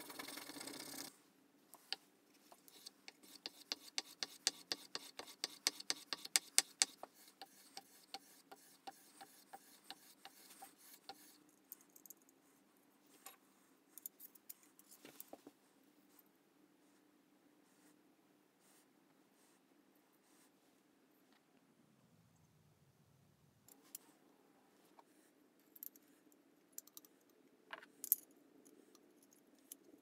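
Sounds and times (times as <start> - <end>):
block rubbed on leather strop: 2.5 - 11.4.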